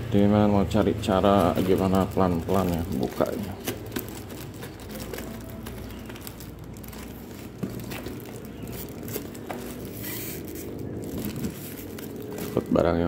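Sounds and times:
cardboard box crackling and rustling: 0.8s - 13.0s.

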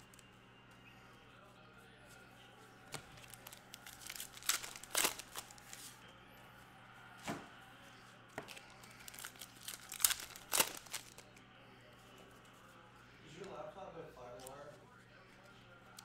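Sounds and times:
crinkly wrapper tearing and crumpling: 2.9s - 5.8s, 8.5s - 11.3s.

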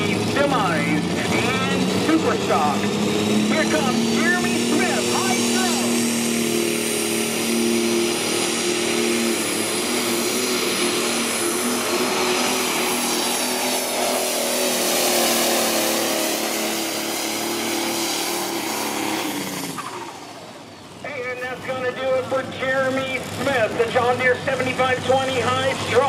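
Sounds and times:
tractor engine running hard: 0.0s - 26.0s
high whine: 0.3s - 15.3s.

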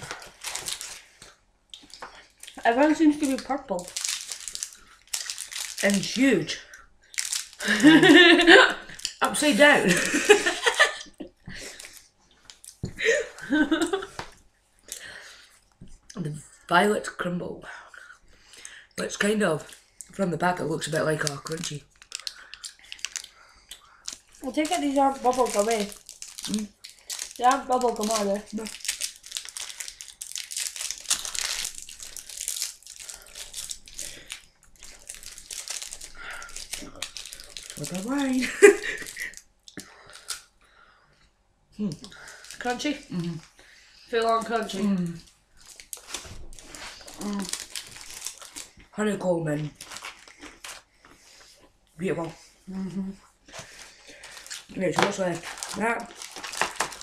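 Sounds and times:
crinkly wrapper: 0.0s - 12.8s, 20.8s - 40.6s, 41.8s - 43.6s, 44.2s - 51.6s, 53.5s - 57.0s
chocolate bar crackling and crunching: 0.0s - 16.1s, 17.8s - 41.0s, 41.8s - 57.0s
women laughing: 7.6s - 8.9s, 9.6s - 11.3s, 13.0s - 14.2s, 38.4s - 39.3s.

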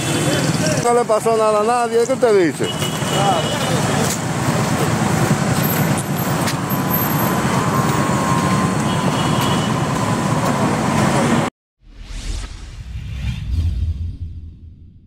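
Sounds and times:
road traffic rumble: 0.0s - 11.5s.

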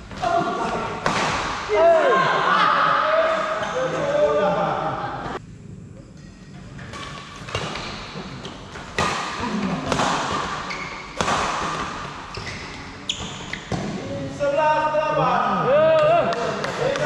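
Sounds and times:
rackets hitting shuttlecock: 0.1s - 1.7s, 6.2s - 12.2s.

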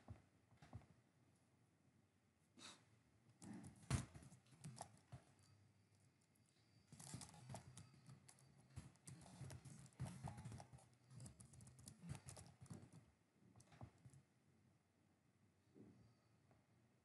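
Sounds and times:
typing on keyboard: 6.9s - 14.2s.

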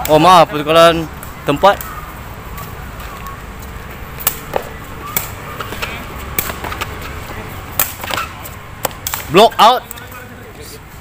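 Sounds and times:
ball being kicked: 4.2s - 9.3s.

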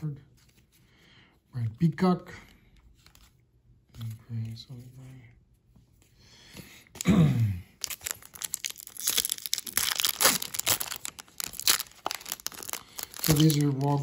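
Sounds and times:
wrapper tearing and crinkling: 7.8s - 14.0s.

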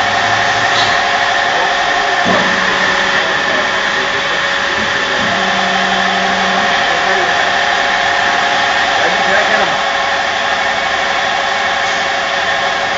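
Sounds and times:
low tone dropping in pitch: 0.0s - 9.3s
drilling machine hum and whine: 0.0s - 12.9s.

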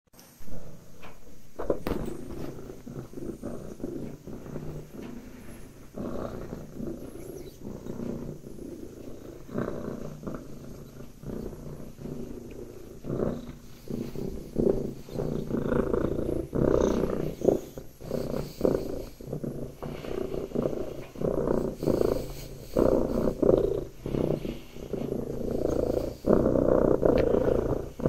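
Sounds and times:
cat purring: 0.2s - 28.0s.

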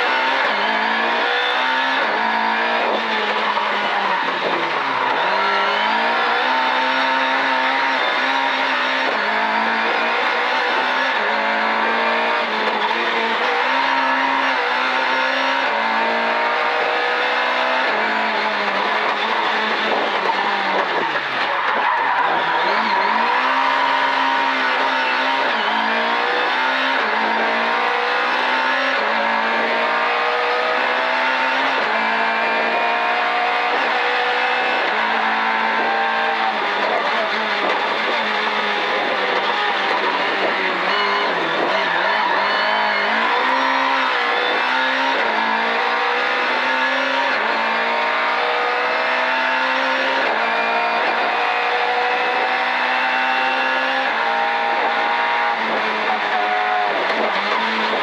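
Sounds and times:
rally car engine revving: 0.0s - 58.0s.

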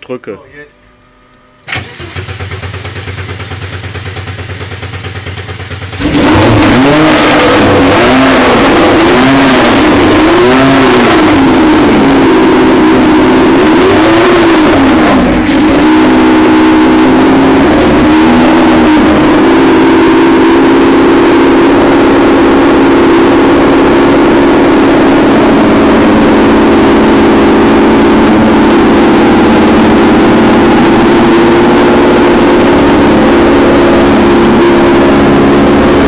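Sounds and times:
starter motor cranking engine: 1.7s - 8.8s, 24.6s - 36.0s
racing engine revving: 5.9s - 36.0s.

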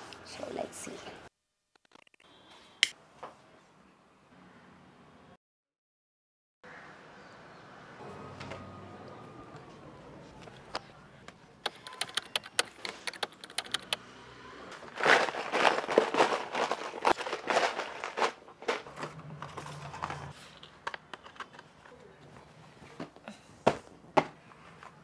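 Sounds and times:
cloth rustling and crinkling: 14.9s - 20.4s.

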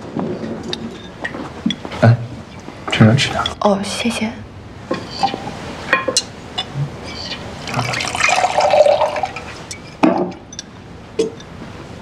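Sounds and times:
wine pouring into a glass: 7.6s - 9.6s.

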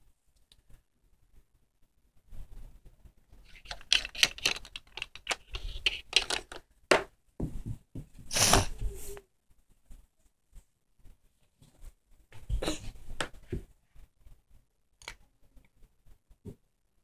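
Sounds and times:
plastic toys clicking on hard surface: 3.6s - 6.6s.

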